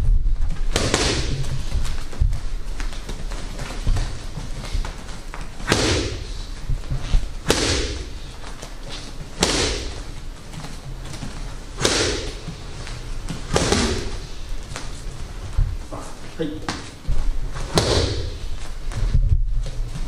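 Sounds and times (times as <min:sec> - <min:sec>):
punches smacking focus mitts: 0:00.7 - 0:08.6, 0:09.4 - 0:10.1, 0:11.8 - 0:12.6, 0:13.3 - 0:14.8, 0:17.7 - 0:18.4.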